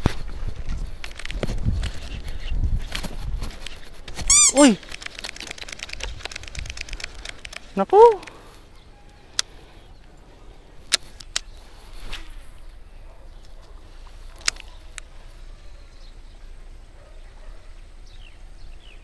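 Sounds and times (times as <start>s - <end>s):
short falling chirps: 4.3s - 4.8s.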